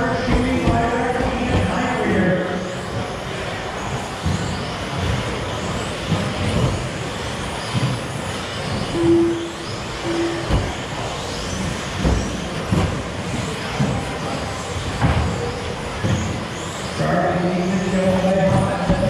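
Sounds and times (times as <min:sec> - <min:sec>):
electric motors whining: 0:00.0 - 0:19.0
short beeps: 0:08.9 - 0:10.6.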